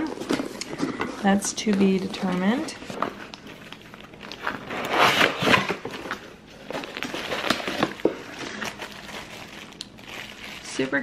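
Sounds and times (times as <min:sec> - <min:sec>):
plastic wrap crinkling: 0:00.0 - 0:11.0
cardboard box scraping: 0:04.5 - 0:05.8.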